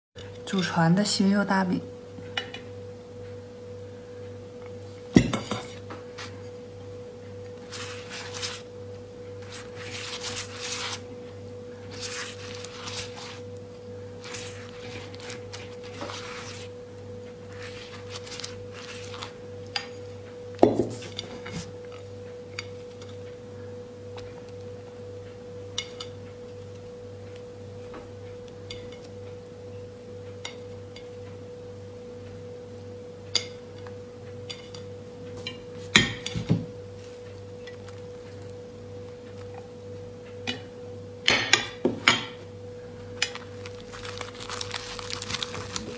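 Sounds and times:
dishes being set down: 0:05.1 - 0:05.8.

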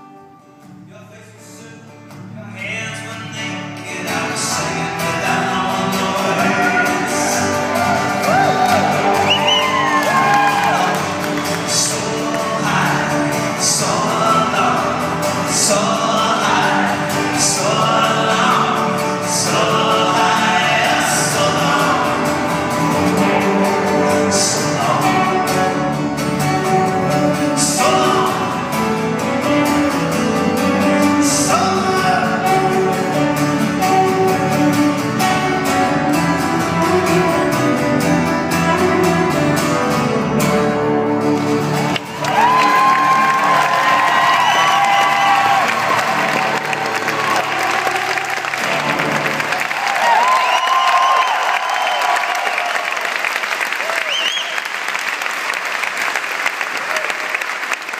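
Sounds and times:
strummed acoustic guitars: 0:00.0 - 0:51.5
man singing: 0:00.8 - 0:40.6
upright bass: 0:02.4 - 0:49.7.

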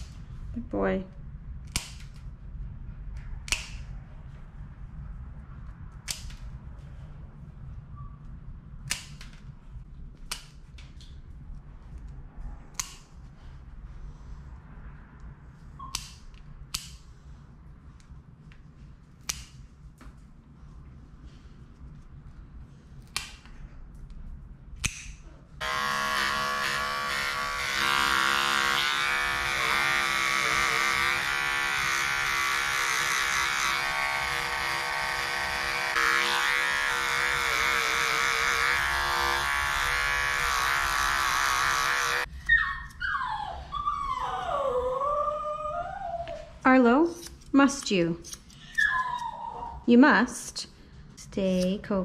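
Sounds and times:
electric dog clipper humming: 0:25.6 - 0:42.3.

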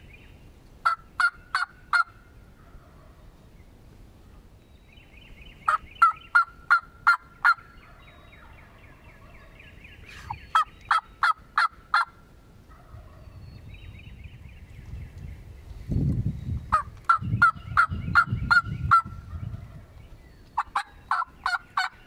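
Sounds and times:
turkey yelping: 0:00.8 - 0:03.2, 0:05.7 - 0:08.5, 0:10.2 - 0:13.3, 0:16.7 - 0:19.1, 0:20.6 - 0:22.0.

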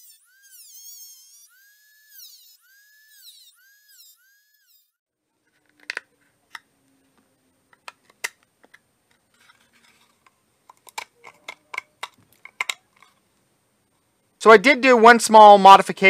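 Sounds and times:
rotary tool whining: 0:00.0 - 0:05.0
plastic case and tools clicking: 0:07.7 - 0:13.2.

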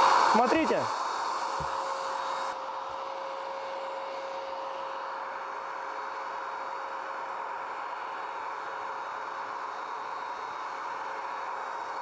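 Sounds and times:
paint spray hissing: 0:00.0 - 0:02.6
paint sprayer turbine whine: 0:00.0 - 0:12.0.

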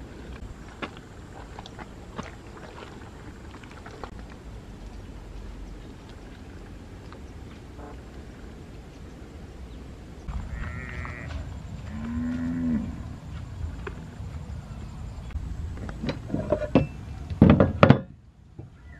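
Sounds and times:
outdoor background hum: 0:00.0 - 0:18.9
high-pitched animal call: 0:10.3 - 0:11.3
cow mooing: 0:10.4 - 0:13.0.

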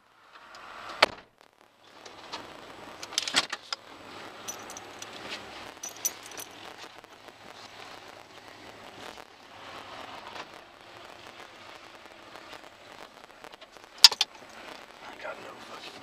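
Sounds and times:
light metallic jingling and clicking: 0:04.4 - 0:06.6
rustling handling noise: 0:04.5 - 0:06.6.

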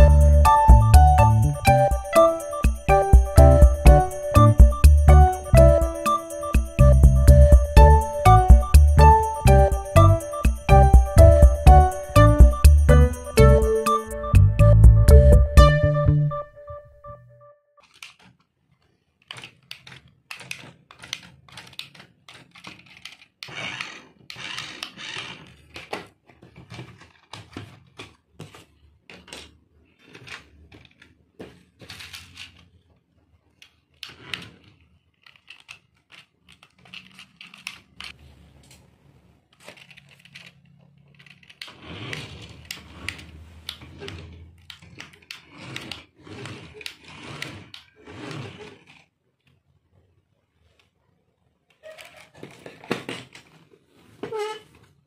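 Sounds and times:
toy car motor whirring: 0:17.8 - 0:32.8, 0:33.5 - 0:38.2, 0:39.5 - 0:49.6.

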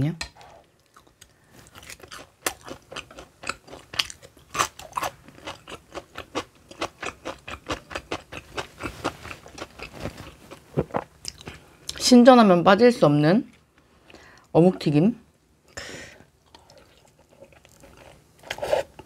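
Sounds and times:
crunchy chewing: 0:00.8 - 0:11.6.

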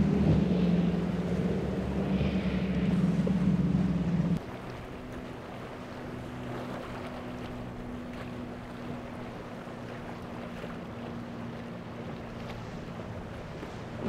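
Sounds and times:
outboard motors droning: 0:00.0 - 0:14.0
water rushing: 0:00.0 - 0:14.0
wind: 0:00.0 - 0:14.0.

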